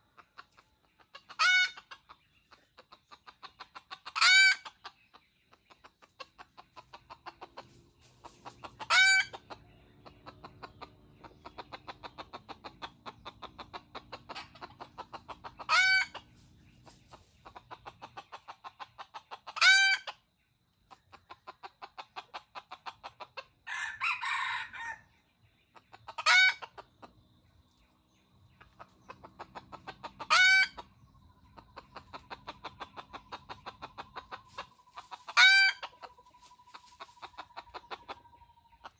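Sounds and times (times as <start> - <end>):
rapid clucking: 0.0 - 23.6, 25.4 - 38.9
rooster crowing: 23.7 - 25.1.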